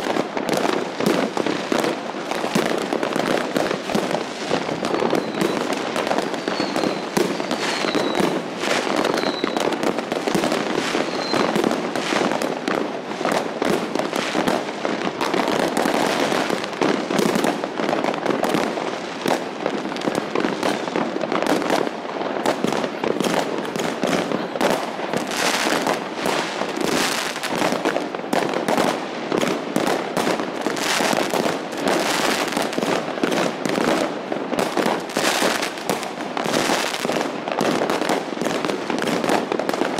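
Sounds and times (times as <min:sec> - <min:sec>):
fireworks crackling and banging: 0:00.0 - 0:39.9
falling firework whistles: 0:04.4 - 0:09.9, 0:10.7 - 0:11.8.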